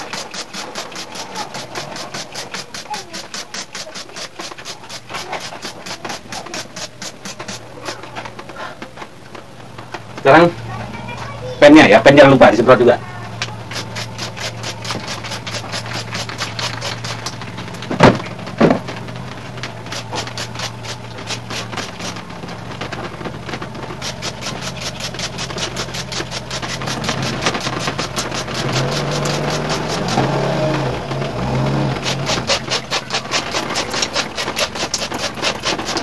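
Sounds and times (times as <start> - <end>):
spray bottle squirting: 0.0 - 8.9, 13.3 - 36.0
loud knocks: 16.6 - 19.7.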